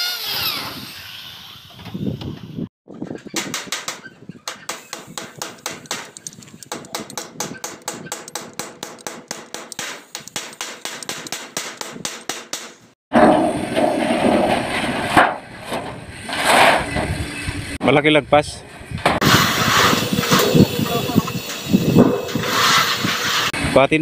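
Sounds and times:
hammer tapping on metal: 3.5 - 12.8.

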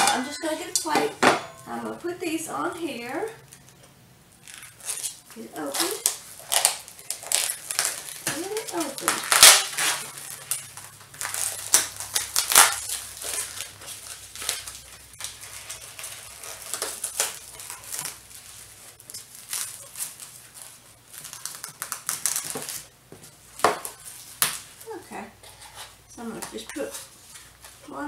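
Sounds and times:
plastic packaging crinkling: 3.0 - 24.9.

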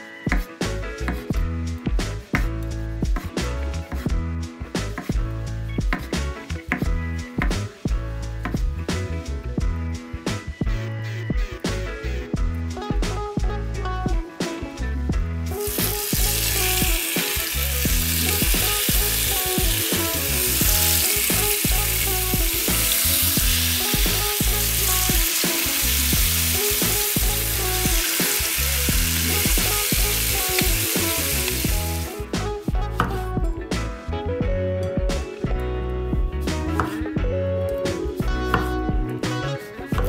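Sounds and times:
background music with a beat: 0.0 - 40.0
chicken sizzling in hot oil: 15.5 - 32.2.

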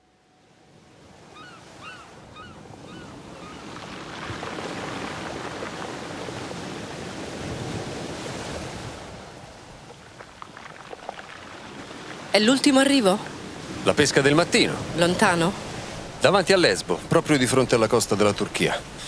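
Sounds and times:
sea waves washing in: 0.4 - 19.0
gulls calling: 1.2 - 5.5.

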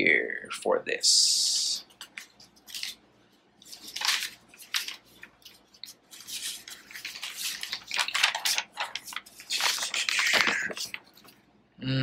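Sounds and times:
paper pages rustling: 1.9 - 3.0, 3.6 - 11.4.

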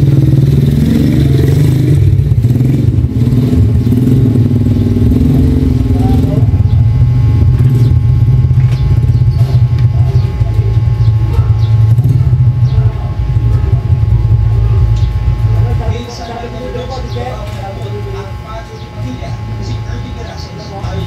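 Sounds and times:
motor humming: 5.1 - 21.0.

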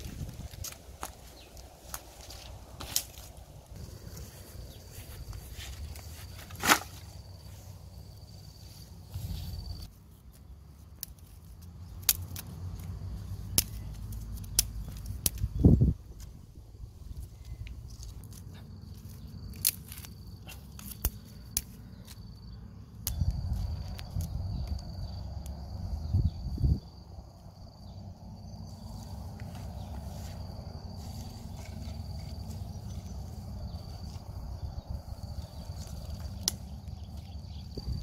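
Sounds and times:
twigs snapping and cracking: 0.0 - 7.2, 10.2 - 16.4, 17.2 - 22.3, 23.0 - 25.6, 31.0 - 38.0
high insect drone: 0.0 - 9.9, 15.6 - 38.0.

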